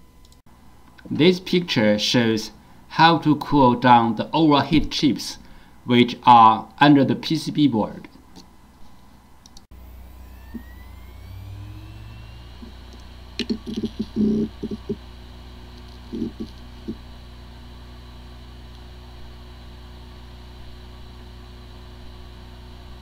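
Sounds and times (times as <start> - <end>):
hard disk humming: 0.0 - 6.8, 7.6 - 23.0
hard disk spinning up whine: 9.7 - 23.0.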